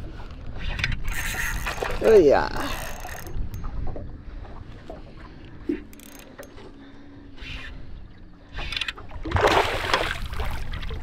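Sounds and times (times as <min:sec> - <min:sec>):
water splashing beside boat: 0:08.4 - 0:11.0.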